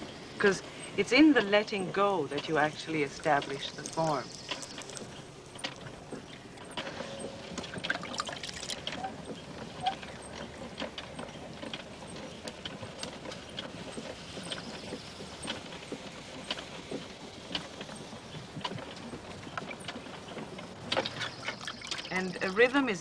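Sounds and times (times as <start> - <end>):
wet clay shaped on potter's wheel: 0.0 - 23.0
small clicks: 3.4 - 5.9.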